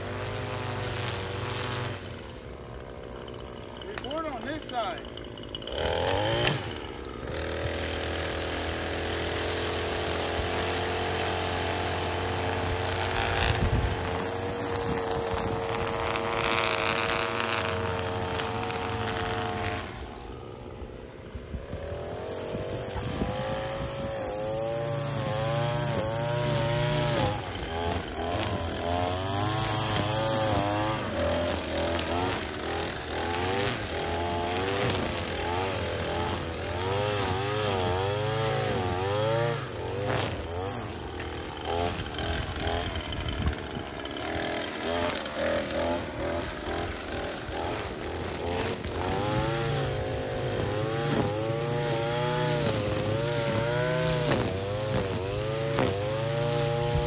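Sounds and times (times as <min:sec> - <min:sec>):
string trimmer engine revving: 0:00.0 - 0:57.0.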